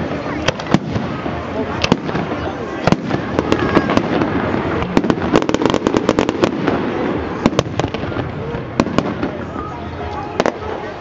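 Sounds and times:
firework bangs and crackles: 0:00.0 - 0:11.0.

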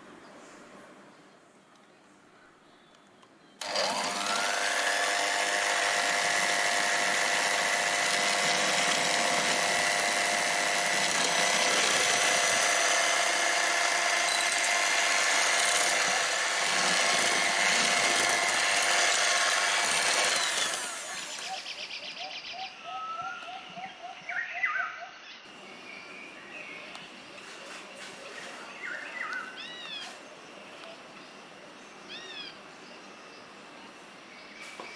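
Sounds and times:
electric hand mixer whining: 0:03.6 - 0:21.4.

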